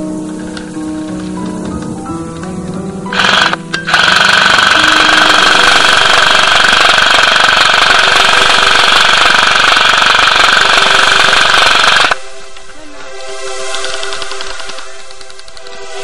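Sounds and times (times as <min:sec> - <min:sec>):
airsoft gun full auto rattle: 0:03.1 - 0:12.2.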